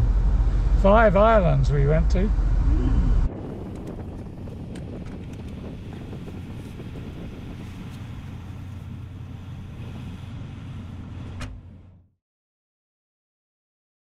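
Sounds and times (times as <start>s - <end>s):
vehicle engine idling: 0.0s - 12.0s
car door shutting: 11.2s - 11.8s.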